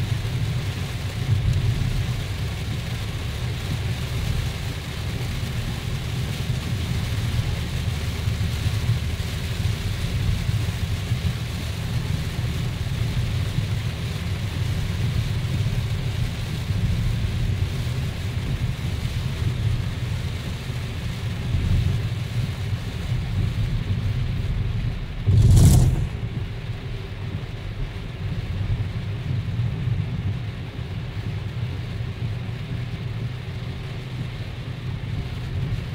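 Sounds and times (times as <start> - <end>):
car driving on wet road: 0.0 - 35.9
heavy rain on windscreen: 0.0 - 35.9
brief whoosh: 25.2 - 26.6.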